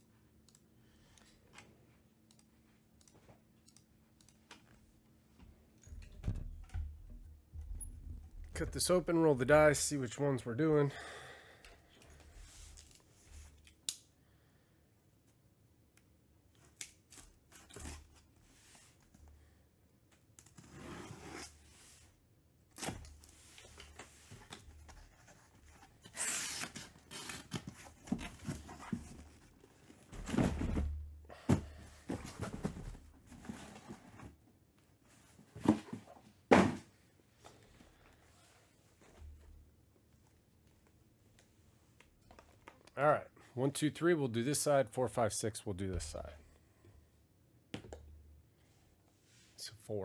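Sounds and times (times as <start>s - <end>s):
boxes sliding and set down: 30.0s - 34.4s, 35.3s - 37.0s.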